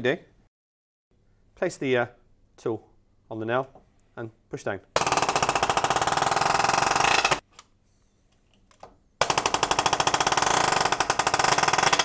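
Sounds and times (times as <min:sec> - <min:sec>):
pneumatic nailer hammering nail into wood: 0:09.2 - 0:12.0.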